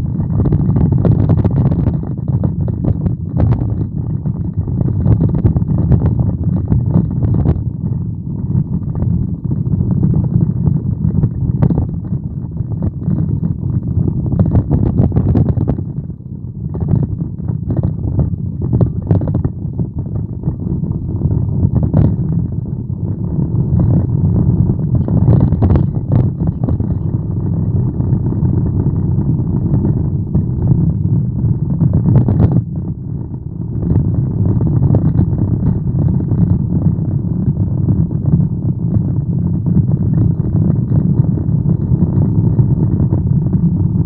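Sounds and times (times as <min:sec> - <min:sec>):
car driving rumble inside cabin: 0:16.8 - 0:44.0.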